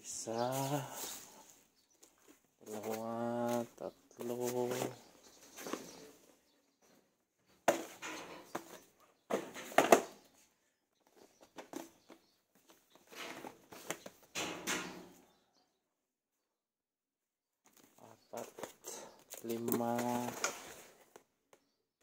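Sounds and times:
cardboard boxes rustling and knocking: 7.6 - 10.4, 11.0 - 14.3, 17.7 - 21.2.

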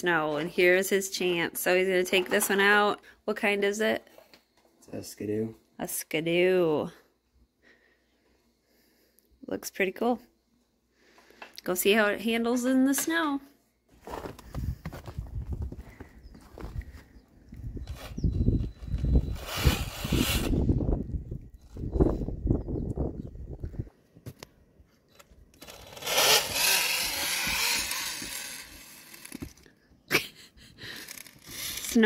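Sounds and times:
footsteps crunching in snow: 13.9 - 17.1, 26.2 - 29.6
small motor whirring: 17.9 - 20.9, 25.1 - 29.7, 30.9 - 32.0.

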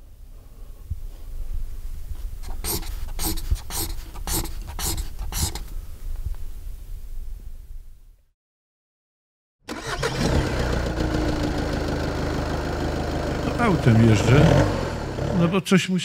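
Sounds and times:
marker drawing on paper: 2.4 - 5.7.

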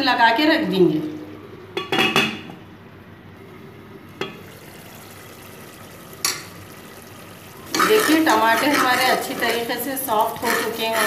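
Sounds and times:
metal lid clattering on pot: 1.8 - 2.5
tomatoes sizzling in oil: 4.2 - 11.0.

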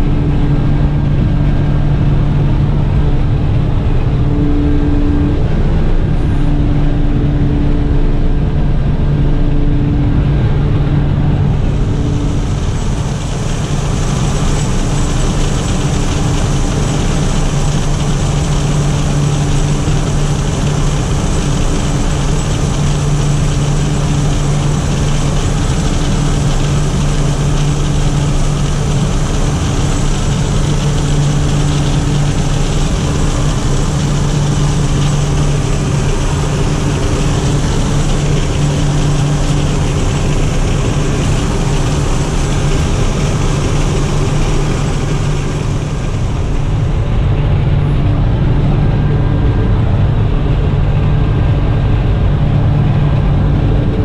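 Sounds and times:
plane engines droning: 0.0 - 54.0
cabin hiss: 11.5 - 46.9.

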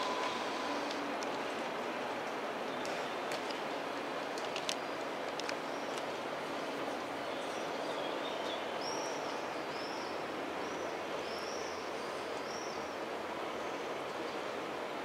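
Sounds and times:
train wheels rolling on rails: 0.0 - 7.2.

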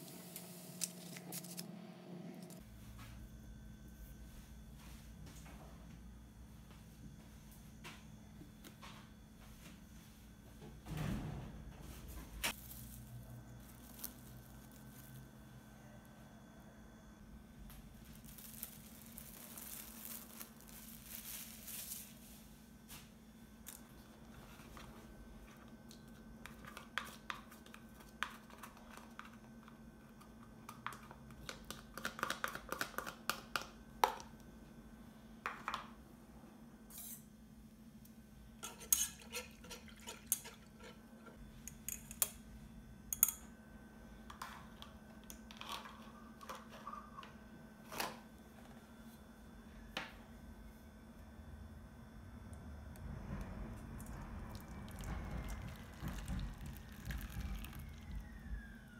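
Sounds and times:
steady low hum: 0.0 - 32.0, 32.6 - 58.9
utensils clinking on cookware: 38.6 - 42.3.

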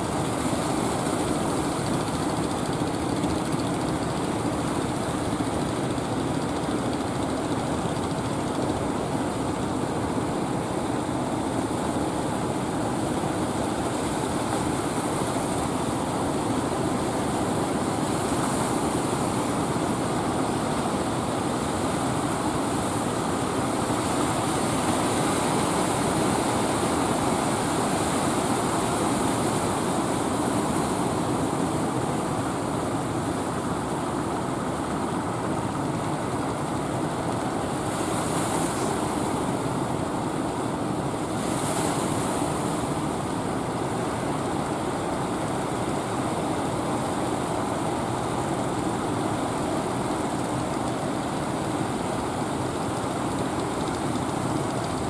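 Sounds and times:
boat engines droning: 0.0 - 55.0.

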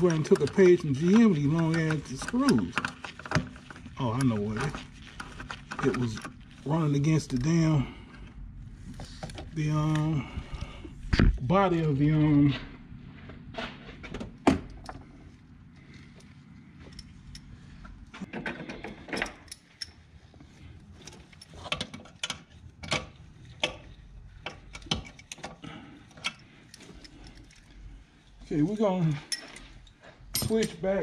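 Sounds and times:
ratchet clicks and metal knocks: 0.0 - 6.3, 16.8 - 20.0, 21.0 - 27.7.

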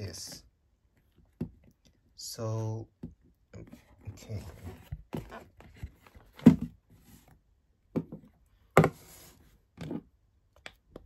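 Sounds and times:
box knocks and thumps on table: 6.3 - 6.8, 7.9 - 9.1.

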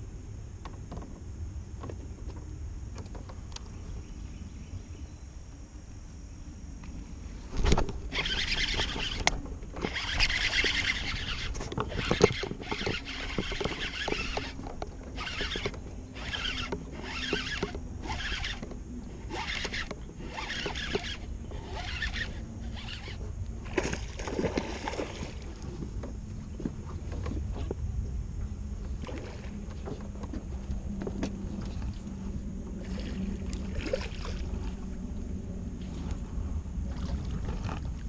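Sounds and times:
fishing reel being cranked: 7.6 - 23.2.

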